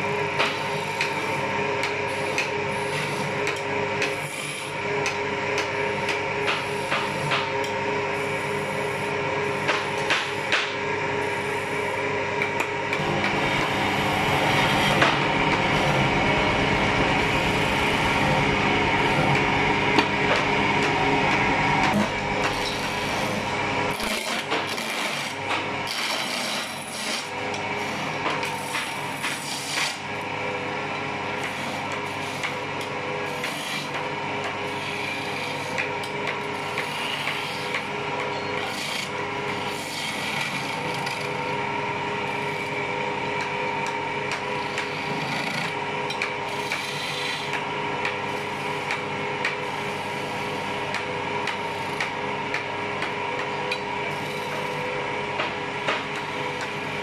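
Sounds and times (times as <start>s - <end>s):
wood lathe running: 0.0s - 57.0s
chisel scraping turning wood: 21.9s - 30.1s, 33.3s - 41.4s, 44.3s - 54.8s.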